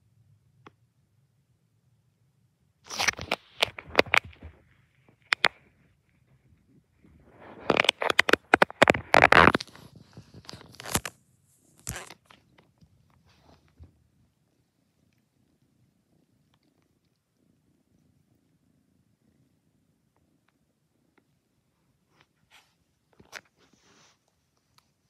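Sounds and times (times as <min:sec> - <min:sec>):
rustling and scraping on microphone: 0:02.9 - 0:14.2, 0:22.0 - 0:25.0
cat purring: 0:02.9 - 0:25.0.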